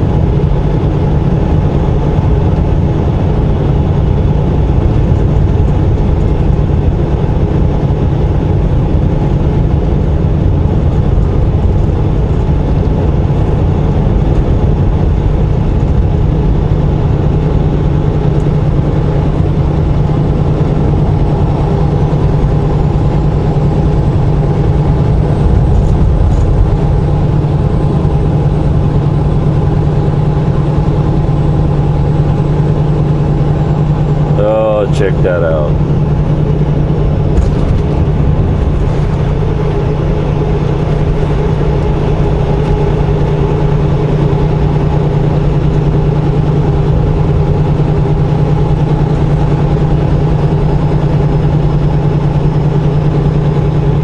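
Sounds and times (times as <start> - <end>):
diesel truck engine droning: 0.0 - 54.0
road noise: 0.0 - 54.0.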